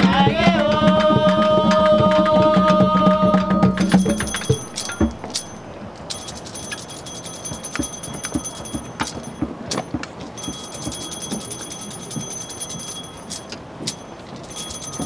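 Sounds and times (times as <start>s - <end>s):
low thumps: 0.0s - 6.3s
small bell ringing rapidly: 3.6s - 15.0s.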